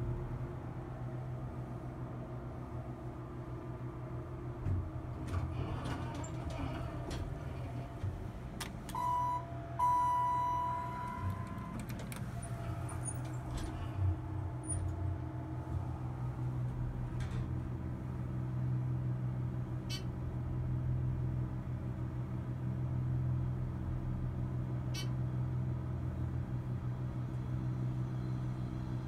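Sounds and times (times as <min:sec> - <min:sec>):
elevator hum: 0:00.0 - 0:29.0
elevator electronic beeps: 0:08.9 - 0:13.8.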